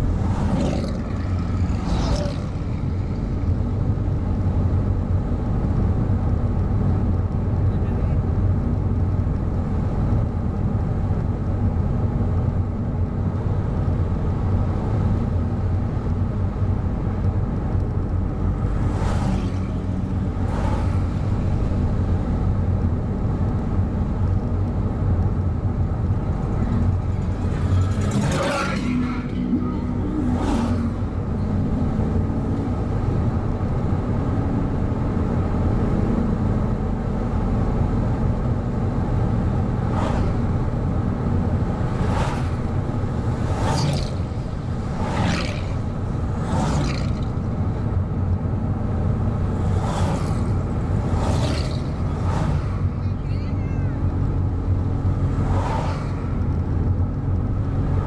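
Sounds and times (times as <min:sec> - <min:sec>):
car engine and tyres on road: 0:00.0 - 0:58.0
oncoming cars whooshing past: 0:26.7 - 0:31.4, 0:39.8 - 0:40.6, 0:41.8 - 0:47.5, 0:49.6 - 0:53.0, 0:55.1 - 0:56.6.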